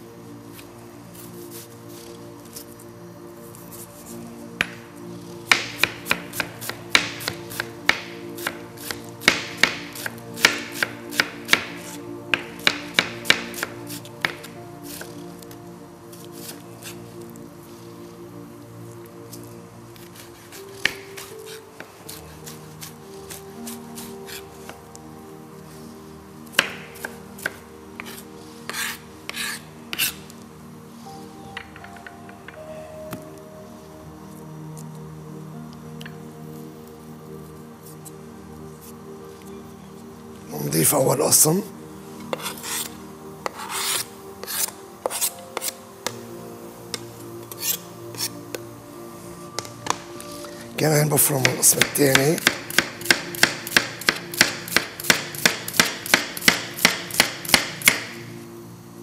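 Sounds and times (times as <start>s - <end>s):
knife chopping on cutting board: 5.5s - 15.1s, 51.4s - 58.1s
knife scraping cutting board: 27.0s - 30.3s, 42.2s - 45.8s, 47.5s - 48.4s.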